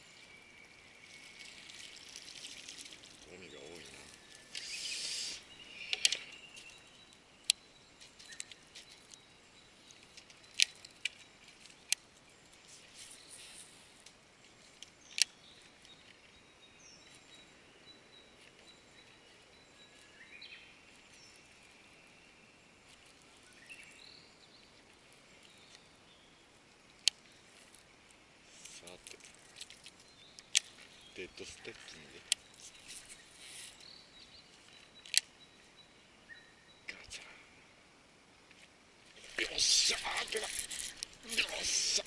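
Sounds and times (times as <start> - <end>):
faint bird calls: 3.3 - 6.7
sharp isolated clicks: 5.9 - 6.3.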